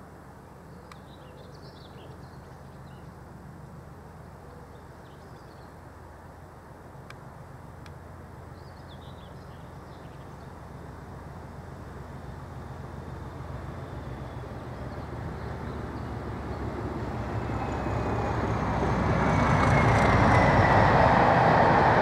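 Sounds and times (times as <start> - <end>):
small birds chirping: 0.6 - 3.2, 8.5 - 10.6
diesel locomotive rumble: 9.1 - 22.0.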